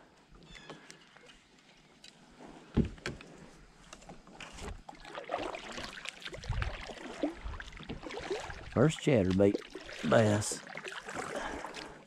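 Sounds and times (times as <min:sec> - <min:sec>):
hollow thump on kayak: 0:02.8 - 0:03.2
paddle splashing in water: 0:04.3 - 0:12.0.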